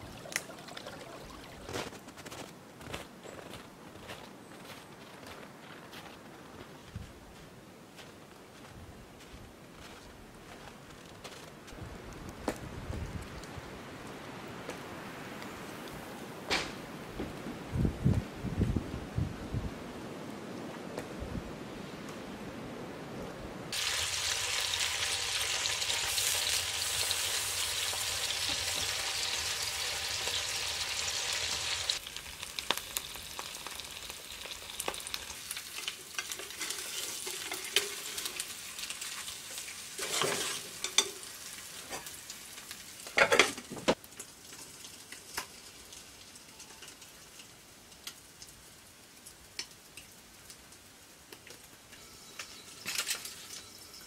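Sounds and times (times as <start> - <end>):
eggs sizzling in a pan: 23.7 - 43.2, 43.9 - 48.5
spatula scraping a pan: 40.0 - 41.2.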